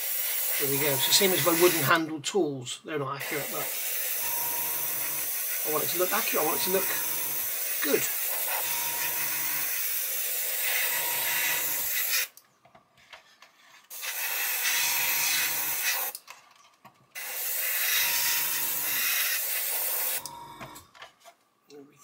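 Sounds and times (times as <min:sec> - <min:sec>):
airbrush spraying hiss: 0:00.0 - 0:01.9.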